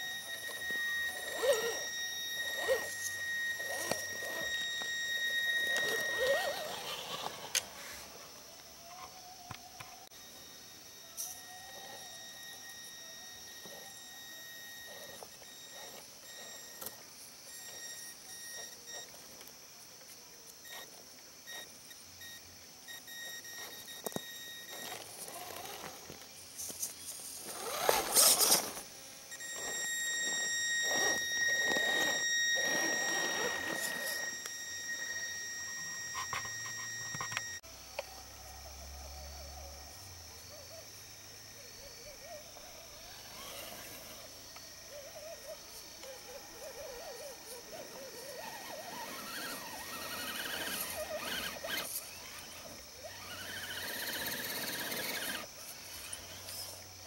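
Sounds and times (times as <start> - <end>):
electric motor whining: 0.0 - 19.5, 20.6 - 37.6, 42.2 - 57.0
tyres scrabbling over dirt and rocks: 2.4 - 8.1, 23.6 - 28.9.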